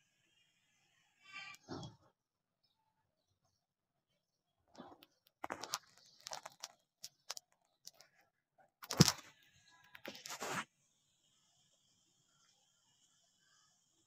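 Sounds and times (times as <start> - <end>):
rustling and crunching: 4.8 - 8.2, 8.8 - 9.4, 10.0 - 10.6.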